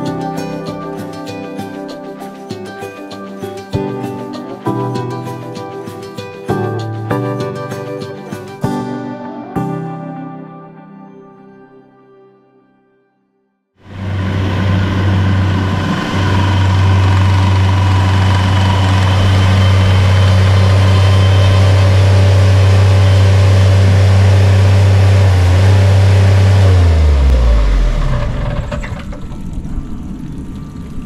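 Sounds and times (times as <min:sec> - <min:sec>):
diesel engine running: 0:13.8 - 0:31.0.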